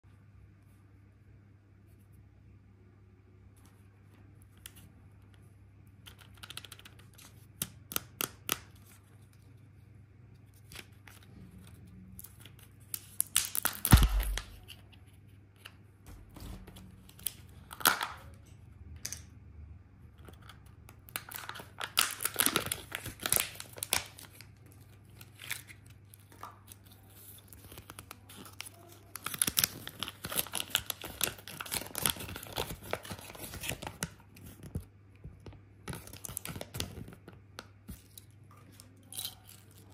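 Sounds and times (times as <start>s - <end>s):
packet torn open: 12.2s - 14.8s, 20.4s - 34.8s, 35.8s - 37.3s
plastic wrapping crinkling: 12.2s - 14.9s, 21.1s - 34.9s
loud plastic crack: 13.2s - 14.6s.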